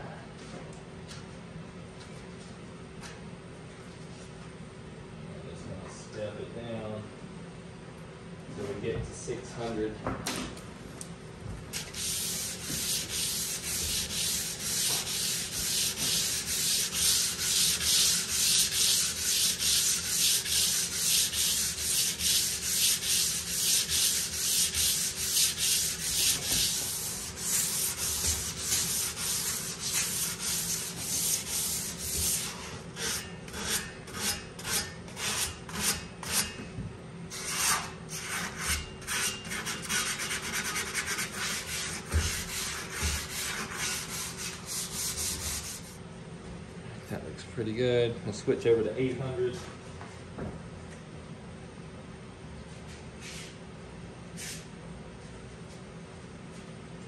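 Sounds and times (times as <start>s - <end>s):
sandpaper scratching on metal: 11.8s - 36.4s, 37.4s - 46.0s.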